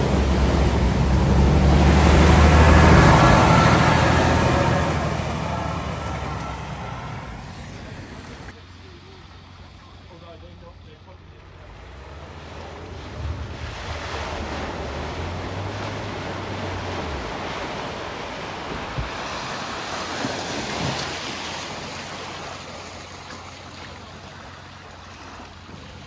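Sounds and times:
low hum: 0.0 - 8.5
vehicle splashing through water: 0.0 - 26.0.

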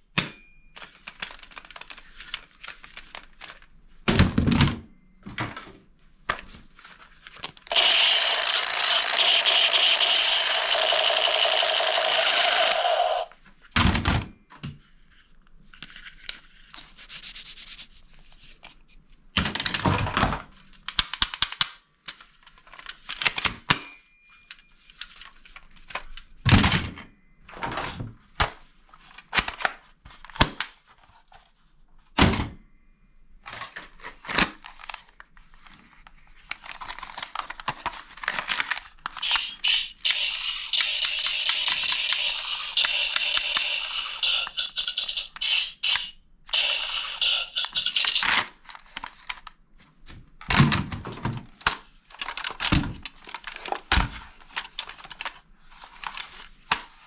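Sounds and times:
plastic toy guns clattering: 36.6 - 49.4, 51.6 - 55.4.

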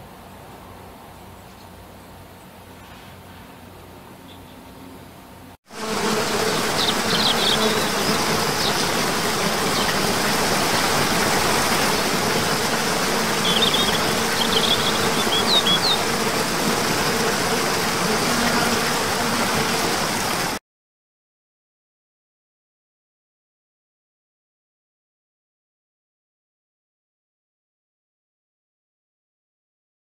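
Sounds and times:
small birds chirping: 6.4 - 10.3, 13.4 - 16.1
waterfall rushing into pool: 6.5 - 20.6.

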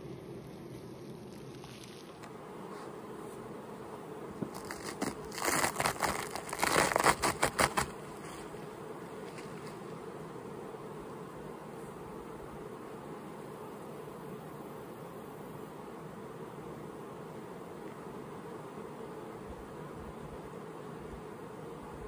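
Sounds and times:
bees buzzing: 0.0 - 22.0
wax comb cover crackling and tearing: 4.5 - 7.9.

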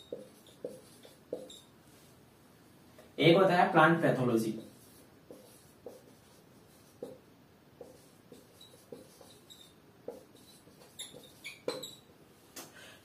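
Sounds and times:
marker squeaks: 0.0 - 1.7, 7.8 - 12.1
marker writing on whiteboard: 0.0 - 2.1, 4.2 - 12.7.

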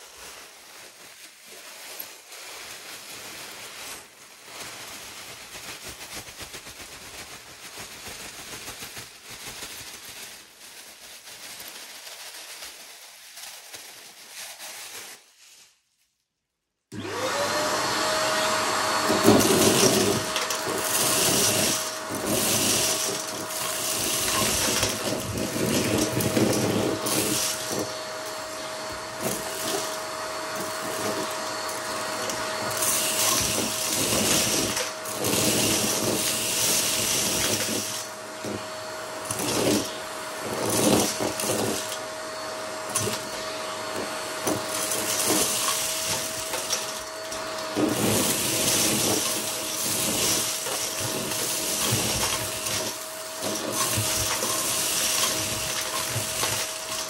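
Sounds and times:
vacuum cleaner running: 0.0 - 4.6, 16.9 - 57.0.

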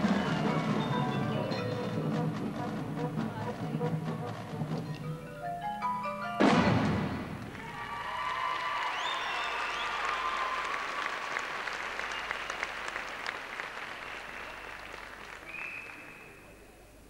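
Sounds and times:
audience applauding: 7.5 - 16.6.

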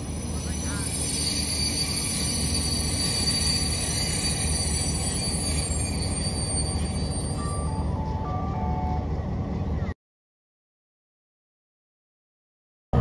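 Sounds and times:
train wheels squealing: 0.0 - 9.0
train rumbling on rails: 0.0 - 10.0.

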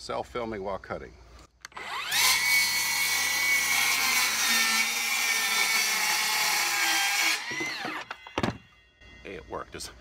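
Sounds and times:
circular saw cutting wood: 1.7 - 8.4.

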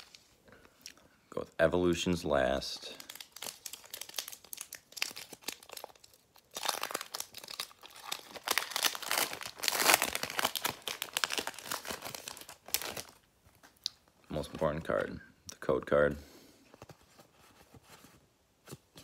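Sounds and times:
foil wrapper crinkling: 2.8 - 13.8.

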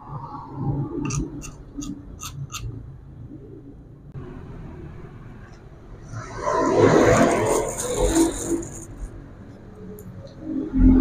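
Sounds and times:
spoon scraping in stone mortar: 1.1 - 2.7.

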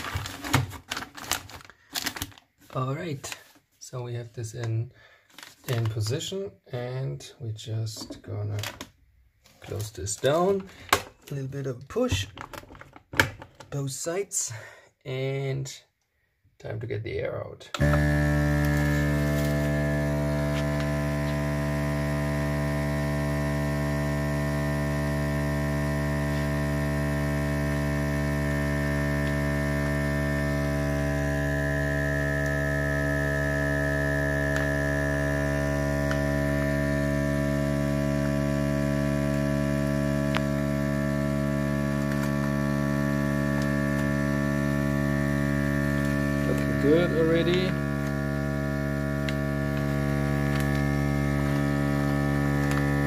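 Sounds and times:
vacuum sealer pump humming: 0.0 - 3.5, 17.8 - 53.0.

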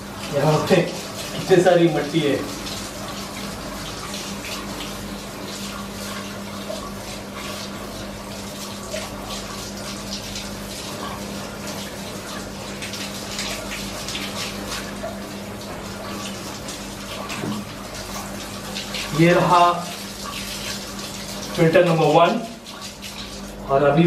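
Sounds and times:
water splashing on tiled floor: 2.2 - 23.7.

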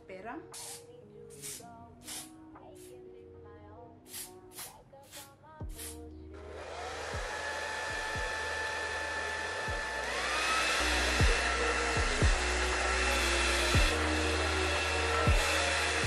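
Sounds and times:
hair dryer blowing: 0.6 - 0.8, 4.1 - 16.0
music with low bass beat: 5.6 - 5.9, 7.9 - 8.4, 11.2 - 11.4, 12.0 - 12.5, 13.8 - 14.0, 15.3 - 15.5.

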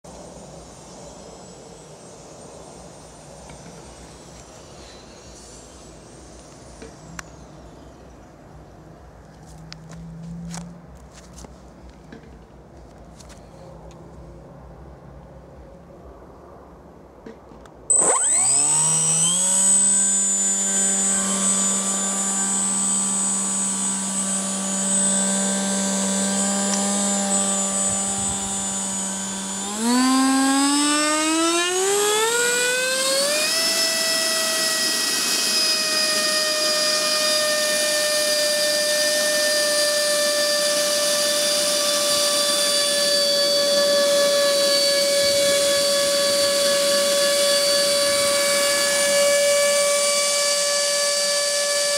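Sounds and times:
electric ducted fan whine: 0.1 - 51.9.

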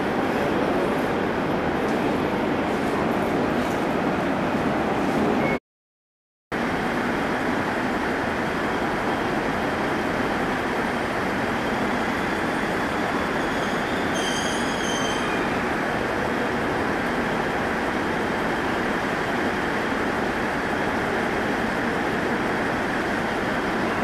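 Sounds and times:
electric train rumbling: 6.6 - 24.0
train brakes squealing: 11.9 - 15.8.

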